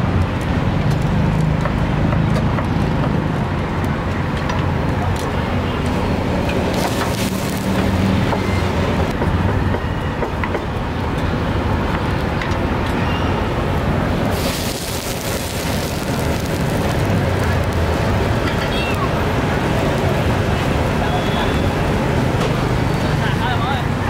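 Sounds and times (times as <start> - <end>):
street traffic rumble: 0.0 - 24.0
gas burner hissing: 6.2 - 9.0, 13.9 - 21.1.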